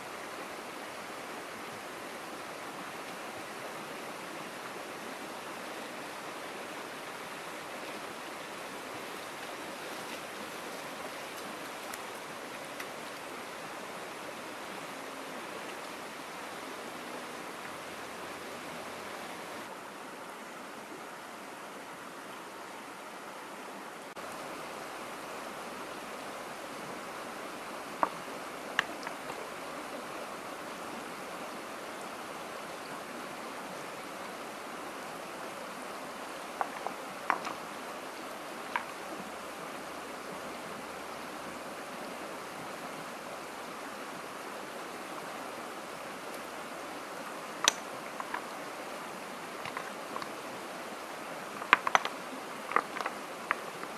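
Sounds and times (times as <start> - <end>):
shallow stream running: 0.0 - 53.9
stones knocking together: 36.6 - 37.6, 51.6 - 52.1, 52.7 - 53.2.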